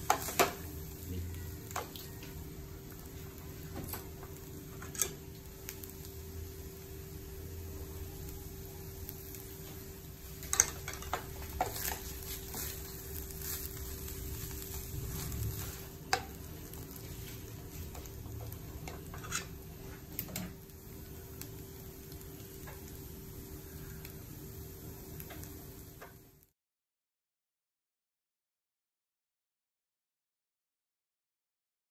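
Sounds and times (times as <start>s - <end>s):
faint sizzle: 0.0s - 26.5s
spatula stirring fried rice: 10.2s - 21.2s.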